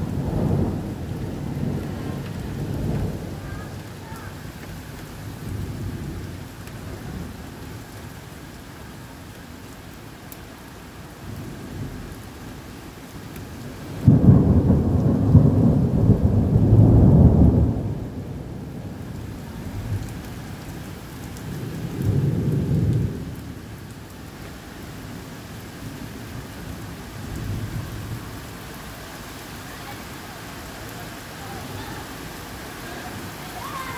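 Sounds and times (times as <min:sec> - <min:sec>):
thunder rumbling: 0:00.0 - 0:07.4, 0:13.6 - 0:23.9, 0:25.8 - 0:33.9
heavy rain: 0:00.0 - 0:33.9.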